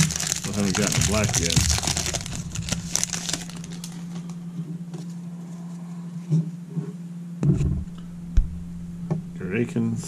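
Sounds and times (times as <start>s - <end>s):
cards rustling: 0.0s - 4.0s
foil wrapper crinkling: 0.0s - 4.3s
steady low hum: 0.0s - 10.0s.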